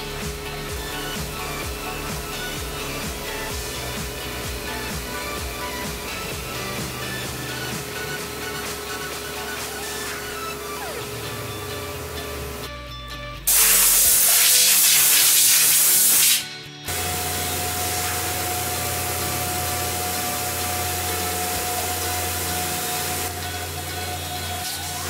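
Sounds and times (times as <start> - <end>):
mill spindle whining: 0.0 - 12.7, 16.9 - 25.0
music: 0.0 - 25.0
loud spraying hiss: 13.5 - 25.0.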